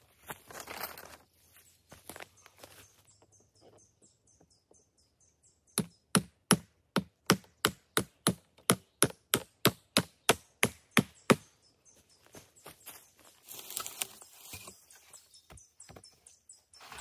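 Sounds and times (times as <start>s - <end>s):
wood being chopped: 5.8s - 11.5s.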